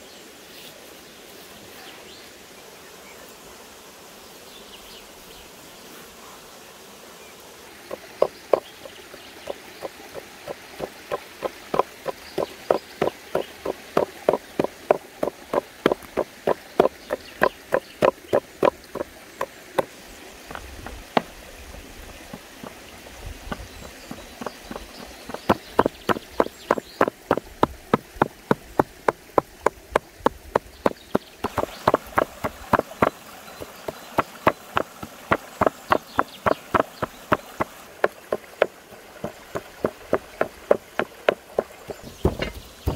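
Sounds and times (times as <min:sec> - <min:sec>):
cleaver chopping meat on wood: 0:09.5 - 0:19.9, 0:23.5 - 0:42.9.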